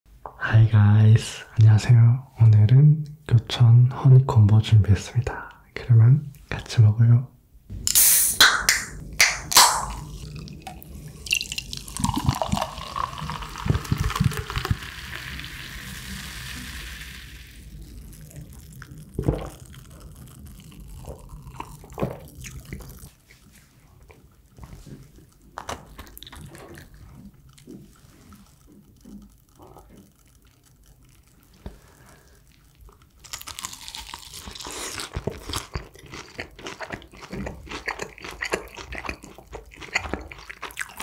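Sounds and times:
can opening crack and hiss: 7.9 - 10.0
cola pouring and fizzing: 10.0 - 23.2.

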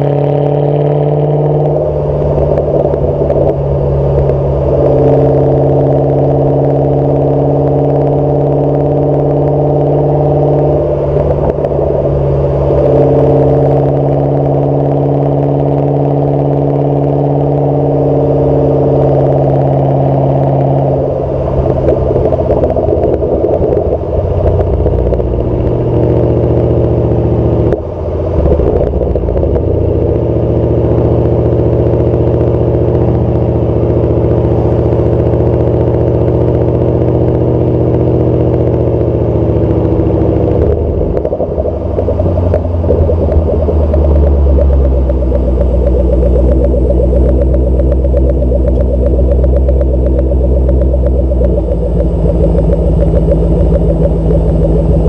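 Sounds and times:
car exhaust droning while driving: 0.0 - 55.0.

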